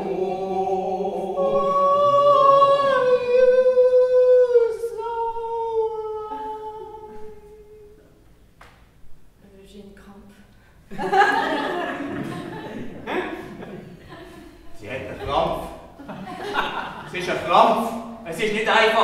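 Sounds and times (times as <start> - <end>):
unaccompanied voices singing: 0.0 - 8.2.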